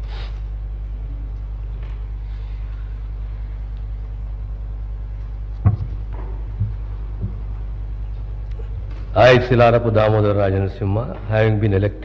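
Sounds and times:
low electrical hum: 0:00.0 - 0:12.0
sudden thump: 0:05.6 - 0:07.4.

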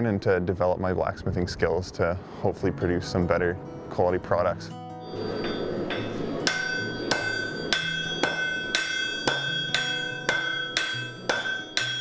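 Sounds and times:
anvil ringing: 0:05.0 - 0:12.0
hammers striking steel on anvil: 0:05.2 - 0:12.0.

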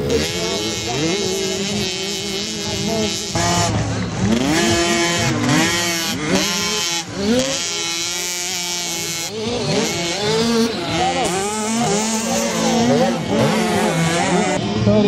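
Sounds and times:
motocross bikes revving: 0:00.0 - 0:15.0.

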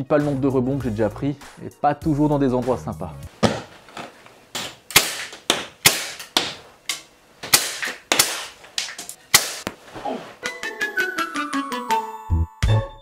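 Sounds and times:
air pistol cracks: 0:04.6 - 0:09.8.

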